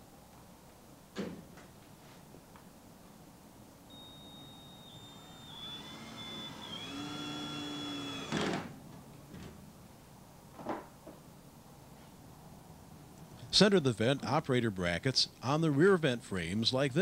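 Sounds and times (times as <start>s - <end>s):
cordless drill motor whine: 3.9s - 8.6s.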